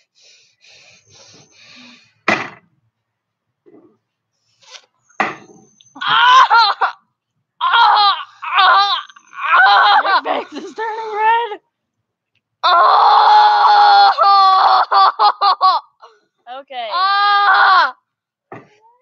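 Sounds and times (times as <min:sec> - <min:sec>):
soft hissing breaths: 0:00.0 - 0:02.3, 0:04.0 - 0:05.2
child laughing: 0:09.7 - 0:11.5.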